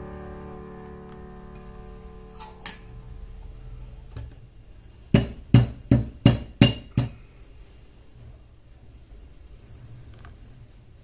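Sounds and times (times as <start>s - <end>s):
metal pitcher knocking on counter: 5.2s - 7.2s.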